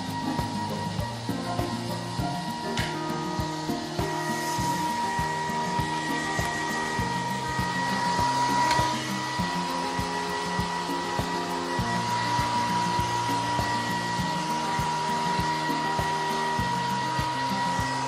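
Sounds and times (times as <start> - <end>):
hair dryer running: 0.0 - 18.0.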